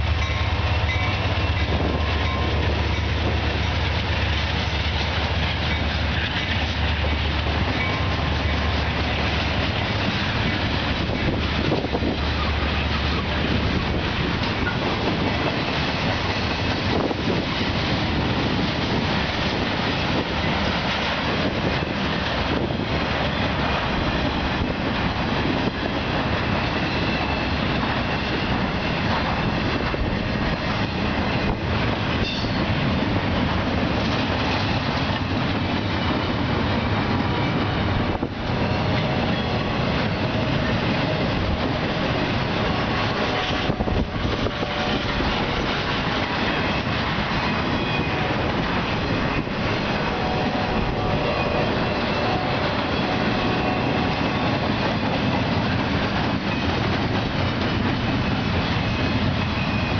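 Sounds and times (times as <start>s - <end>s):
freight train wheels rumbling on rails: 0.0s - 59.9s.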